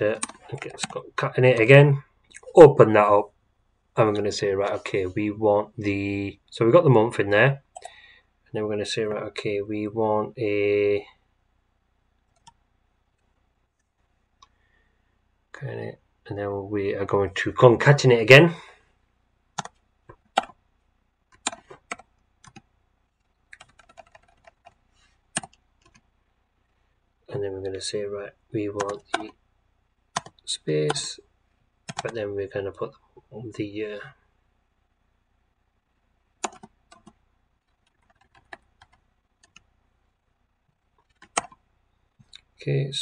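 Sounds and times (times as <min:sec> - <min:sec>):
keyboard typing: 0:00.1 - 0:01.7, 0:19.6 - 0:20.6, 0:21.3 - 0:22.7, 0:23.5 - 0:26.1, 0:28.8 - 0:29.3, 0:30.1 - 0:31.0, 0:31.9 - 0:32.2, 0:36.4 - 0:39.7, 0:41.0 - 0:41.6.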